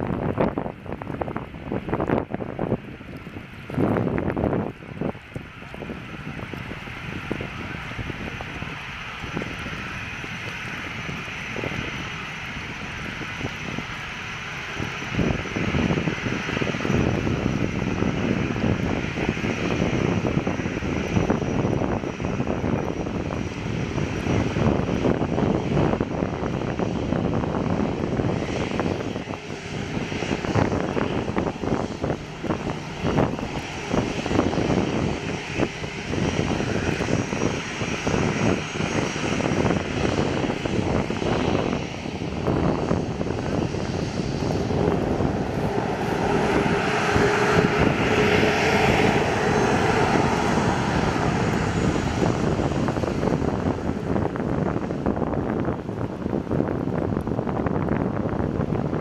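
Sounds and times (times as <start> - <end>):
jet engine whine: 0.0 - 59.0
jet engines rumbling: 0.0 - 59.0.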